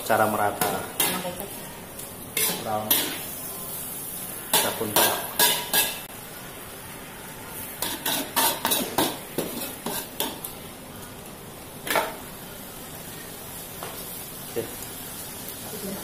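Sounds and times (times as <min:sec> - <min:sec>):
food sizzling: 0:00.0 - 0:16.0
metal spatula scraping wok: 0:02.4 - 0:03.3, 0:07.6 - 0:10.4.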